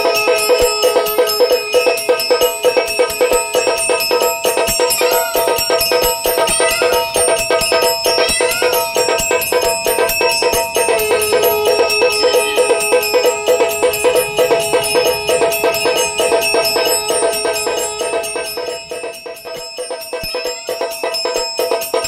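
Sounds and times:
steel drum struck: 0:00.0 - 0:19.9
bell ringing: 0:00.0 - 0:22.0
steady held tone: 0:00.0 - 0:22.0.

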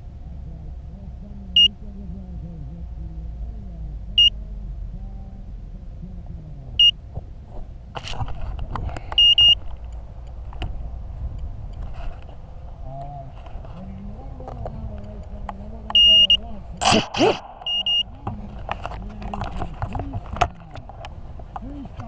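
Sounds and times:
short high buzzer beeps: 0:09.2 - 0:09.6, 0:16.0 - 0:16.4, 0:17.1 - 0:18.2.

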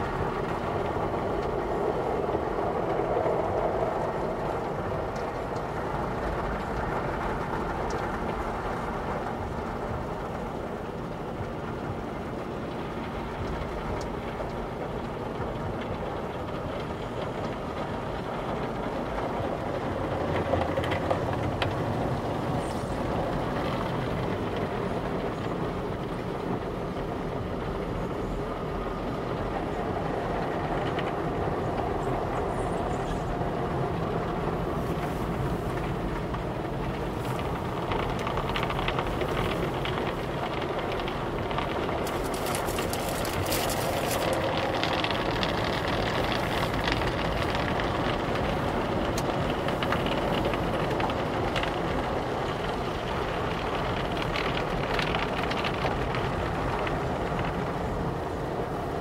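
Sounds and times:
car wash water spray and brushes: 0:33.2 - 0:59.0.

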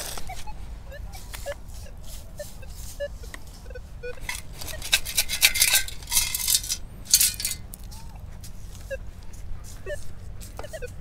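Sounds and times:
metal detector beeps: 0:00.0 - 0:07.6, 0:09.8 - 0:11.0
coins rattling in metal scoop: 0:04.2 - 0:07.7.

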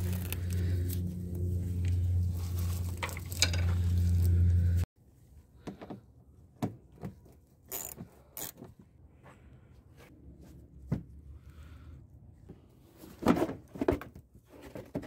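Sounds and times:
steady low hum: 0:00.0 - 0:04.9.

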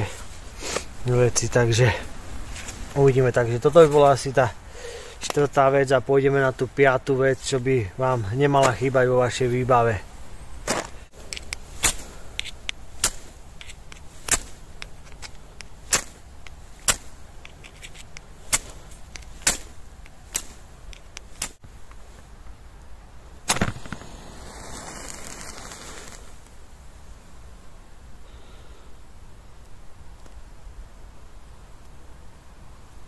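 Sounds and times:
soft rustling: 0:00.0 - 0:04.4, 0:23.6 - 0:27.2
blade chopping into wood: 0:10.6 - 0:21.6.

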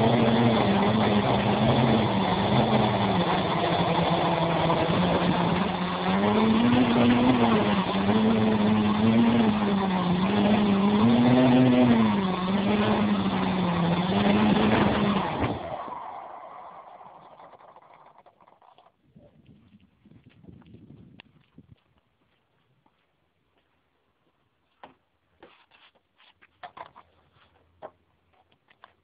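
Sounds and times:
quadcopter motors humming: 0:00.0 - 0:18.1.

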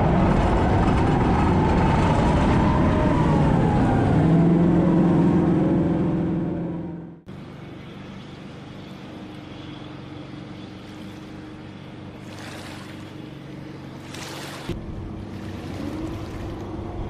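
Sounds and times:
vehicle engine drone: 0:00.0 - 0:17.0
water rushing from bow wake: 0:10.6 - 0:17.0.

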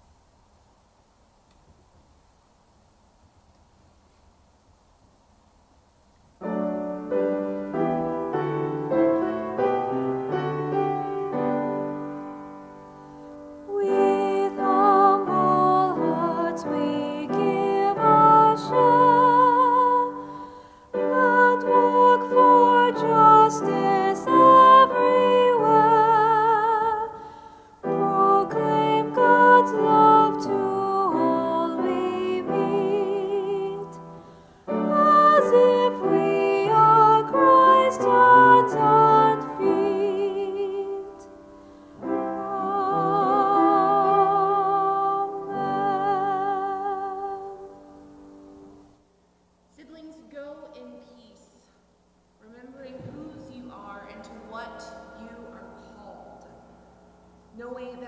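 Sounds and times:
piano accompaniment: 0:06.4 - 0:27.2, 0:27.8 - 0:49.0
person singing with vibrato: 0:13.6 - 0:48.2.

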